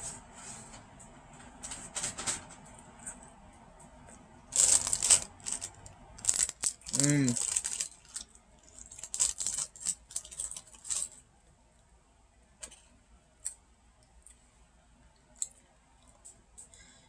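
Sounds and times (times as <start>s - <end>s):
paper napkin crinkling: 4.5s - 11.2s.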